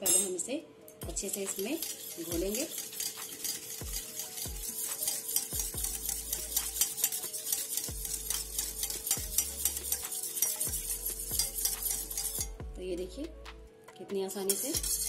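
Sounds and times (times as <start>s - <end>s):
whisk wires clinking on steel: 1.1s - 12.5s, 14.5s - 15.0s
water swishing from whisking: 1.2s - 12.5s, 14.5s - 15.0s.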